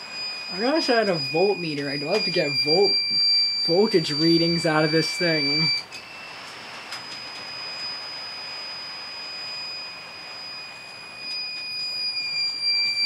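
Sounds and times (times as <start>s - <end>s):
alarm buzzer high-pitched tone: 0.0s - 13.0s.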